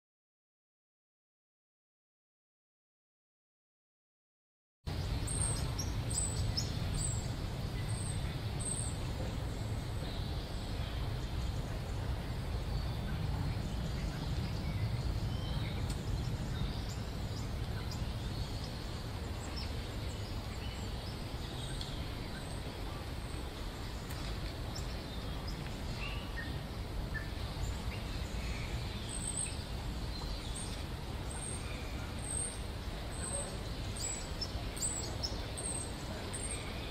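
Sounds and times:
low outdoor background rumble: 4.9 - 36.9
small birds chirping: 4.9 - 36.9.

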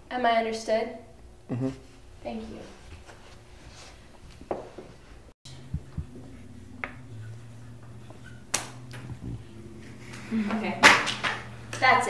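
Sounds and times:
low steady hum: 5.0 - 12.0
sharp snap: 8.5 - 9.1.

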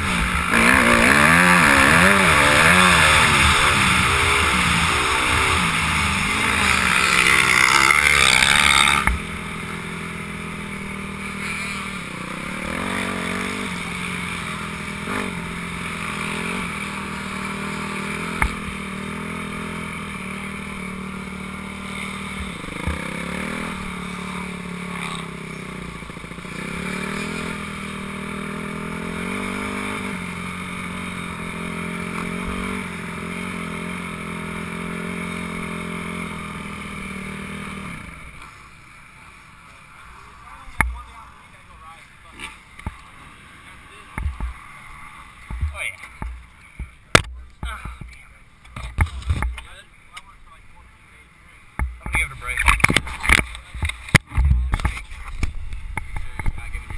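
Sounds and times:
dirt bike engine revving: 0.0 - 48.0.

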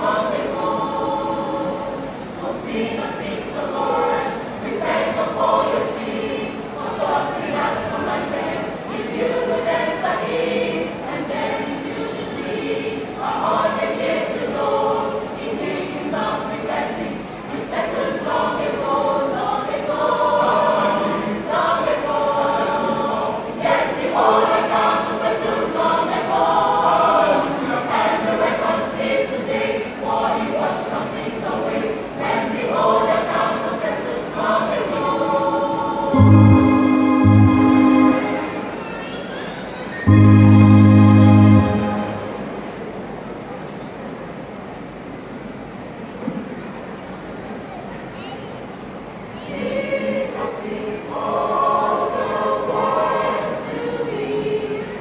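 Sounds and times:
choir singing in parts: 0.0 - 39.0, 40.0 - 43.0, 49.2 - 55.0
loud low chord: 36.1 - 38.8, 40.1 - 42.8.

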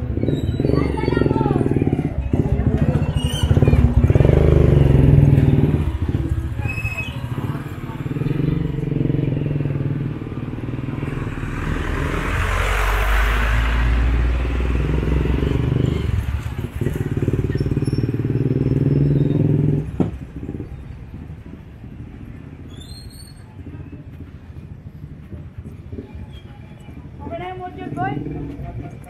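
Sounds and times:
motorcycle engine running: 0.0 - 11.5, 14.5 - 22.7
passing traffic: 0.0 - 29.0.

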